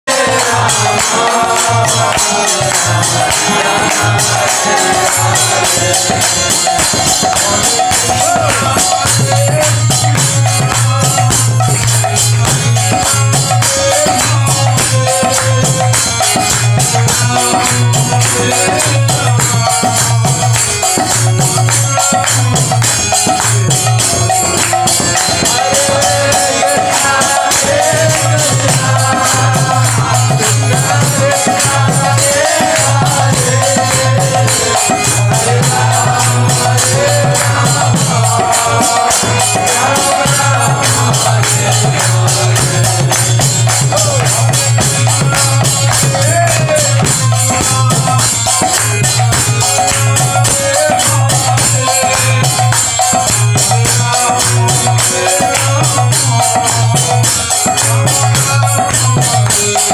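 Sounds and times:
man chanting a devotional melody: 0.0 - 59.9.

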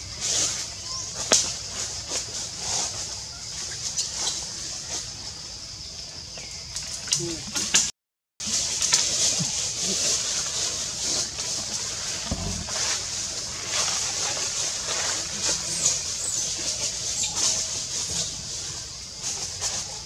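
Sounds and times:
insects buzzing: 8.4 - 20.0
dull low thump: 12.2 - 12.9.

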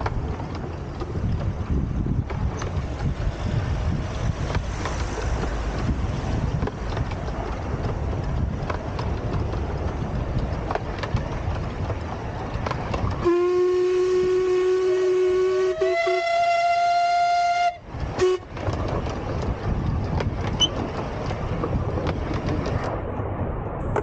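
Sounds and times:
miniature train rumbling: 0.0 - 24.0
wheels clicking on track: 0.0 - 24.0
steam whistle: 13.2 - 18.5.

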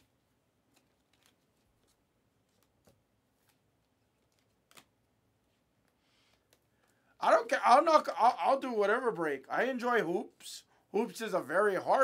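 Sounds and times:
trading cards clicking and rustling: 0.7 - 5.0.

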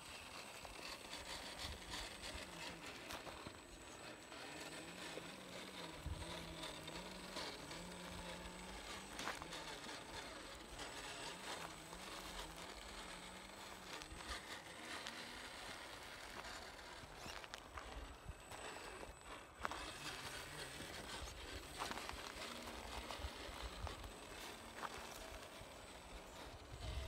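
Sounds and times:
electric motor and gear whine: 0.0 - 27.0
tyres crunching on dirt: 0.6 - 26.5.

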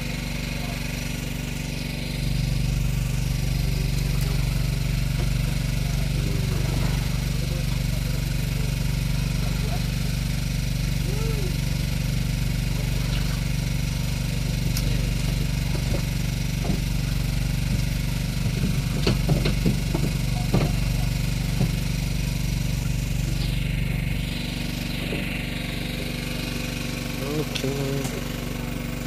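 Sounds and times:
engine idling: 0.0 - 29.0
light clicks and knocks: 17.7 - 21.8.

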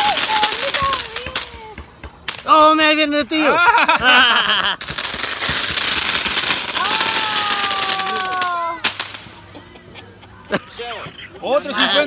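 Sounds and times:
sharp cracks: 0.0 - 2.8, 4.8 - 9.4
fireworks crackling: 0.0 - 9.5.

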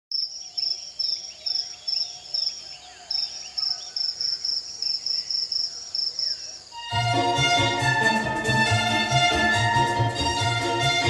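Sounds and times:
cricket chirping: 0.1 - 6.8
faint gliding whistled calls: 0.1 - 6.8.

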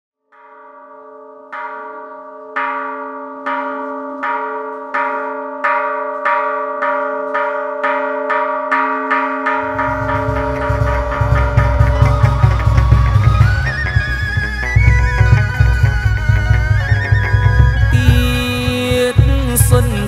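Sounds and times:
temple bell ringing: 0.3 - 20.0
low deep drone: 9.6 - 16.9.

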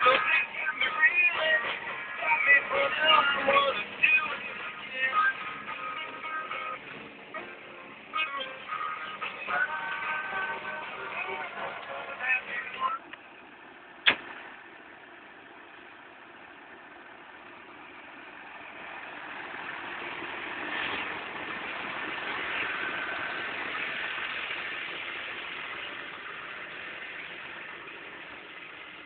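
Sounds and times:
tractor diesel engine running: 0.0 - 29.0
sharp click: 14.0 - 14.4.

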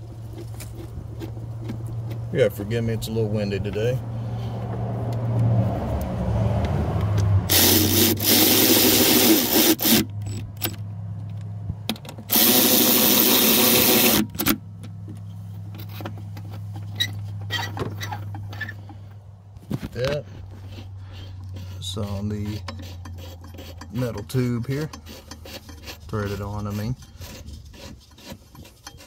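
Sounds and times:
cordless power tool spinning: 7.5 - 10.1, 12.3 - 14.6.

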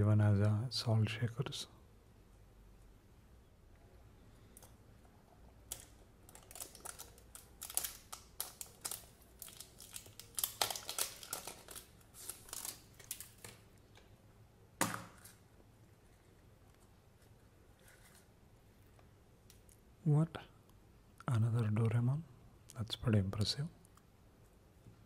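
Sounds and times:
plastic film crinkling: 5.7 - 13.6.

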